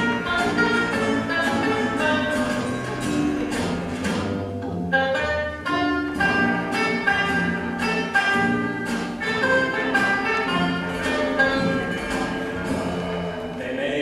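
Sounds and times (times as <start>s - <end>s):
instrumental music: 0.0s - 13.7s.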